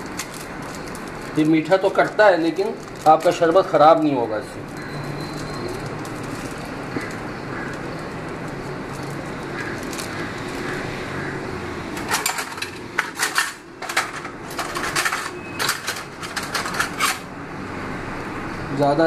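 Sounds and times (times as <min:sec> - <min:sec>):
metal kitchenware clinking: 0:11.9 - 0:17.3.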